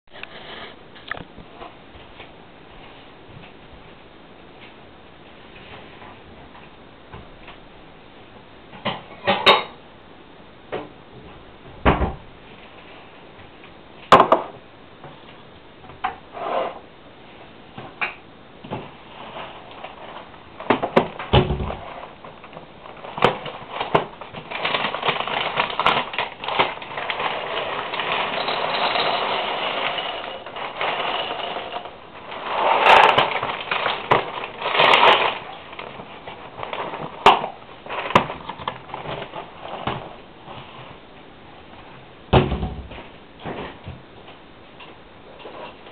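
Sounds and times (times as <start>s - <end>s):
cereal rattling into a bowl: 21.8s - 40.1s.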